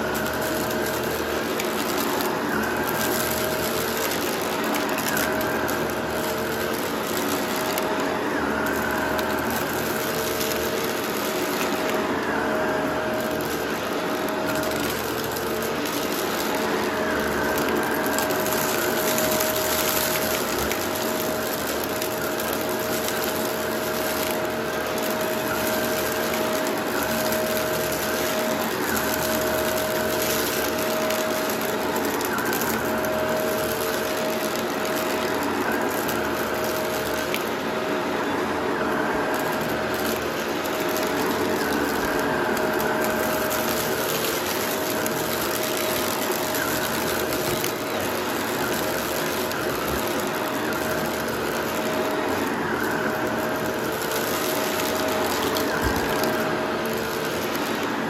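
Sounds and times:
vacuum cleaner running: 0.0s - 58.0s.

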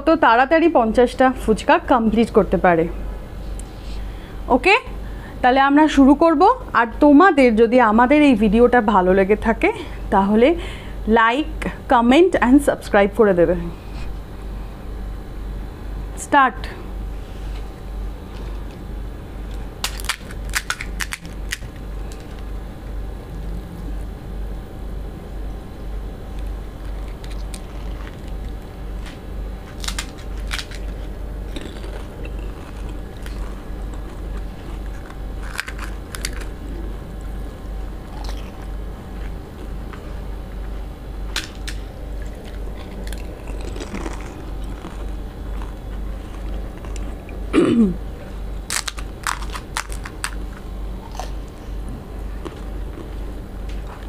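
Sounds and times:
steady low hum: 0.0s - 54.0s
crisp shells crunching: 19.5s - 22.5s, 26.8s - 28.6s, 29.7s - 36.8s, 41.4s - 47.2s, 48.7s - 51.4s
people chewing: 26.3s - 28.6s, 29.7s - 40.2s, 42.1s - 47.5s, 48.7s - 54.0s.

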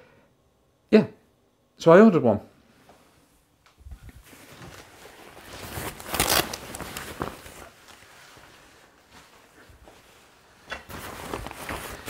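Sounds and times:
waterproof jacket rustling: 4.2s - 12.0s.

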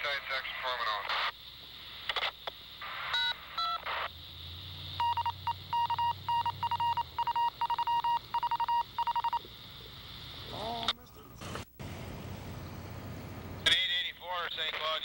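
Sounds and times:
radio static bursts: 0.0s - 5.8s, 10.3s - 12.0s, 13.6s - 15.0s
touch-tone beeps: 5.0s - 9.4s.

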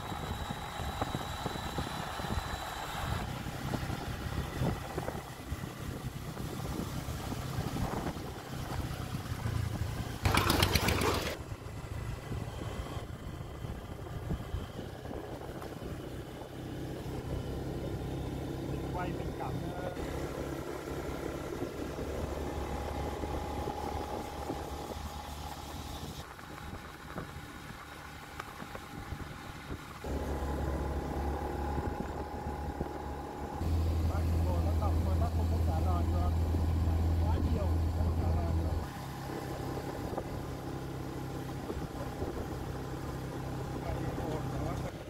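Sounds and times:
road noise: 0.0s - 45.0s
motorbike engine running: 3.7s - 15.7s.

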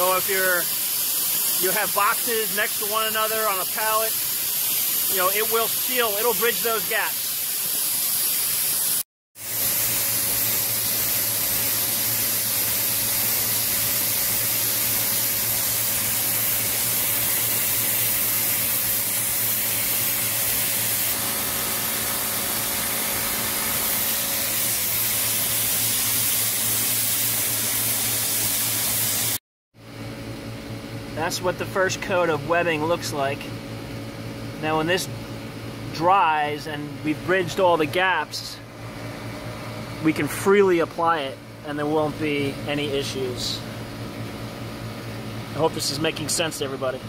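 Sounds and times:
spray hiss: 0.0s - 29.4s
machine hum: 9.4s - 29.1s.

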